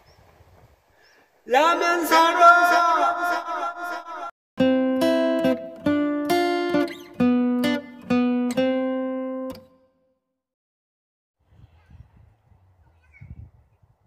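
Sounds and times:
acoustic guitar strummed chords: 4.6s - 9.8s.

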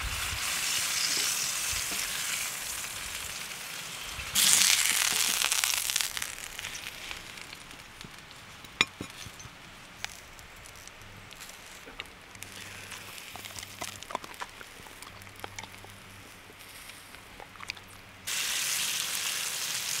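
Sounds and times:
frying pan sizzling on stove: 0.0s - 8.2s, 18.3s - 20.0s.

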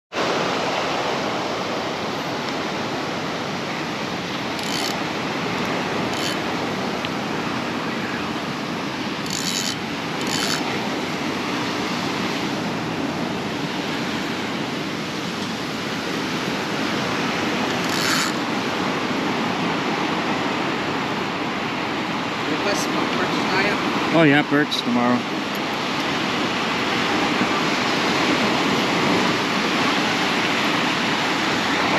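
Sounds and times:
ocean surf washing: 0.1s - 31.9s.

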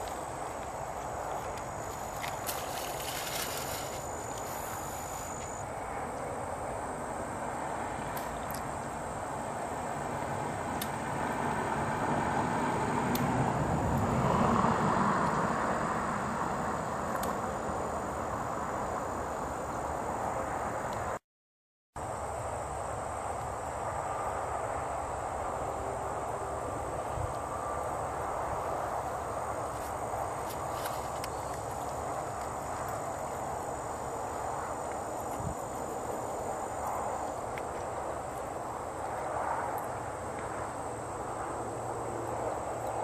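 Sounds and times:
background hiss: 0.0s - 11.1s
insects buzzing: 0.0s - 21.2s, 22.0s - 43.0s.

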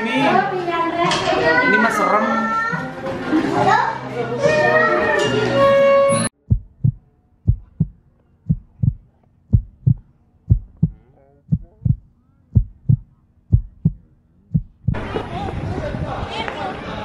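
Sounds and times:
heartbeat thumps: 6.4s - 15.0s.

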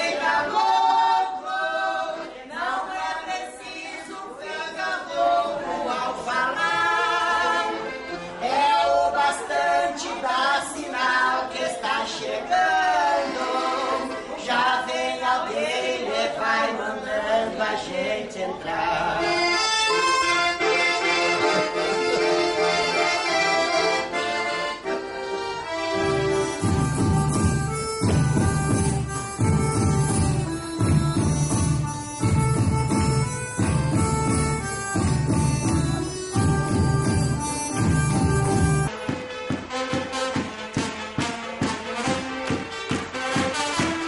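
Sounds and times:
piano accordion playing: 5.8s - 9.2s, 13.0s - 14.6s, 19.2s - 44.0s.

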